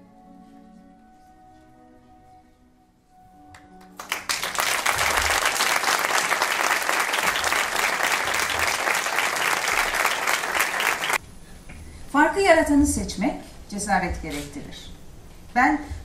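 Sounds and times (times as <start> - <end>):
soft music notes: 0.0 - 4.1
audience applauding: 3.8 - 11.2.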